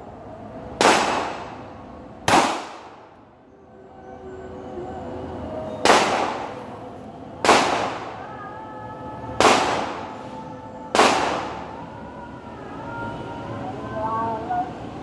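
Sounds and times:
pistol shots with echo: 0:00.8 - 0:01.6, 0:02.3 - 0:03.0, 0:05.8 - 0:06.6, 0:07.4 - 0:08.2, 0:09.4 - 0:10.2, 0:10.9 - 0:11.7.

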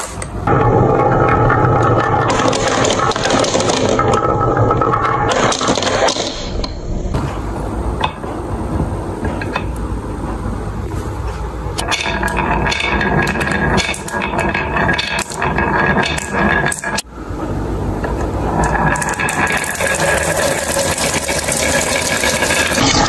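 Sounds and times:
marbles rattling on wooden tracks: 0:00.6 - 0:06.4, 0:11.8 - 0:17.1, 0:18.5 - 0:23.0.

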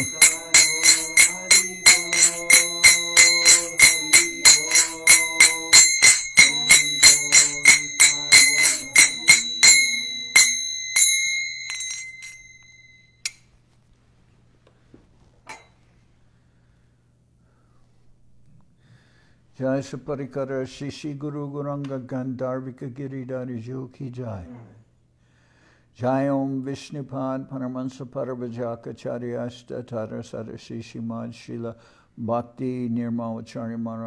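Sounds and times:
brass hand cymbals struck: 0:00.0 - 0:12.5.

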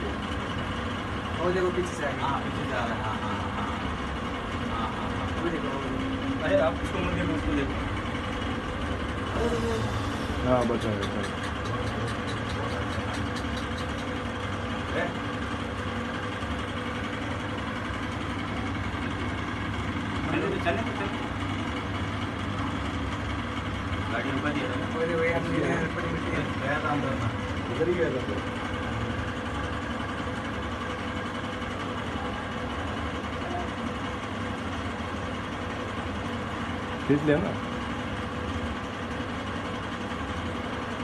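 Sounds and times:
steady background hum: 0:00.0 - 0:41.0
muffled voices: 0:09.3 - 0:14.1.

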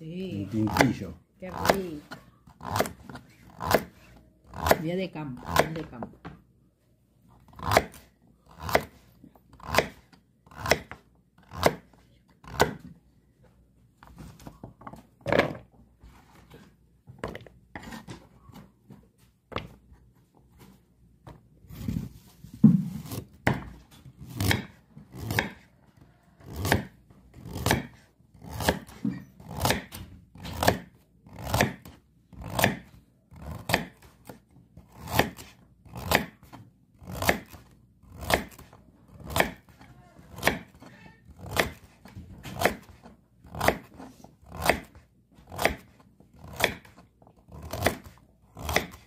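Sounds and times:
knife chopping on wooden board: 0:00.6 - 0:04.8, 0:05.4 - 0:06.4, 0:07.5 - 0:08.0, 0:08.6 - 0:09.0, 0:09.6 - 0:12.9, 0:22.6 - 0:25.6, 0:26.4 - 0:49.0.

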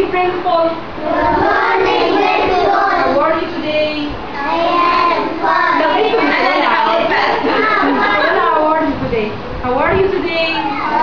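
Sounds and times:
child singing: 0:01.0 - 0:03.2.

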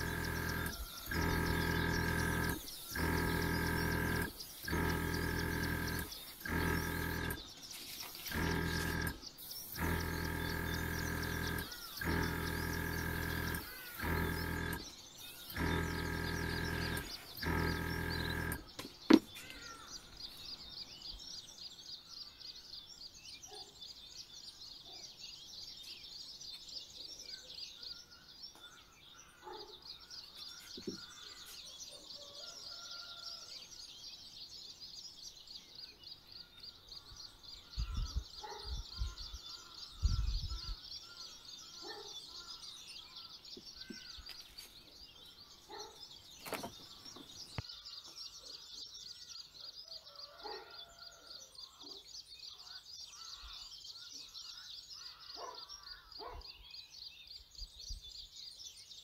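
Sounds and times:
high-pitched wildlife chirping: 0:36.7 - 0:44.7.

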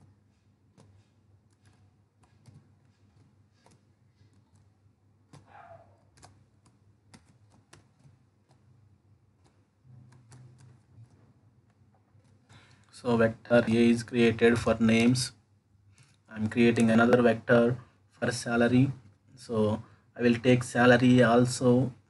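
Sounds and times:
computer keyboard typing: 0:00.7 - 0:12.8.

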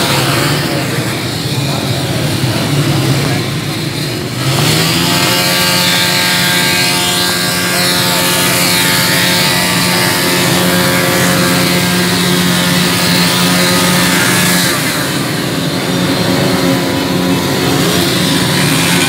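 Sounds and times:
motorcycle engines droning: 0:00.0 - 0:19.0.

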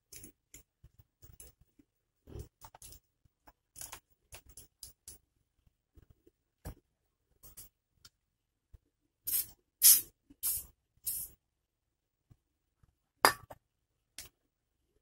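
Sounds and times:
aerosol spray hissing: 0:09.3 - 0:11.3.

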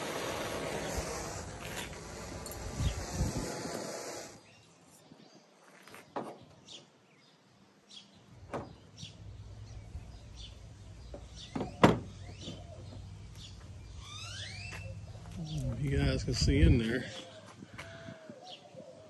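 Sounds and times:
birds chirping: 0:04.1 - 0:19.0.

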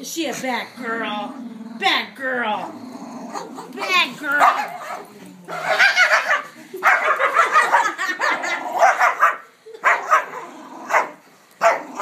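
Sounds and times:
small dog growling and barking: 0:02.5 - 0:12.0.

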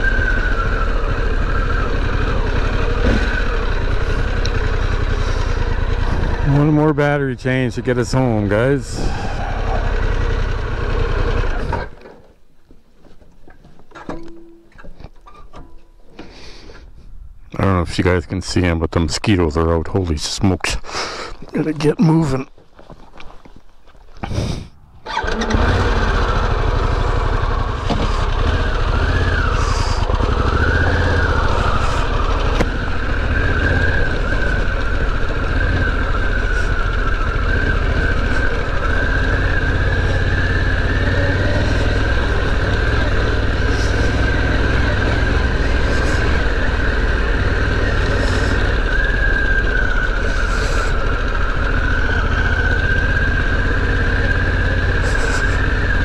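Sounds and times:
motorcycle engine starting and running: 0:00.0 - 0:12.5, 0:24.1 - 0:56.0.

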